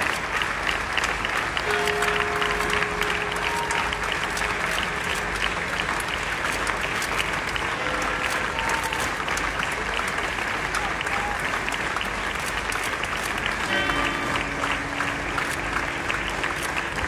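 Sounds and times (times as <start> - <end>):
crowd applauding: 0.0 - 17.0.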